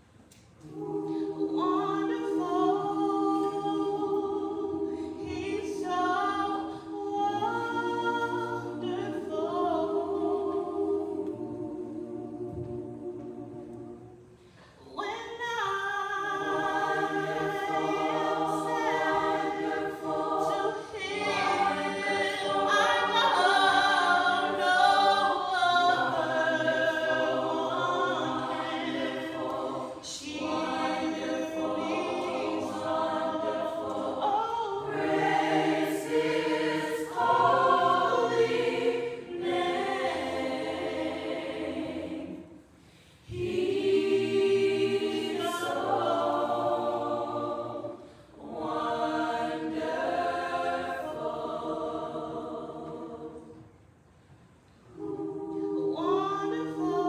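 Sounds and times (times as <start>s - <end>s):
choir singing: 0.0s - 54.0s, 54.6s - 57.0s.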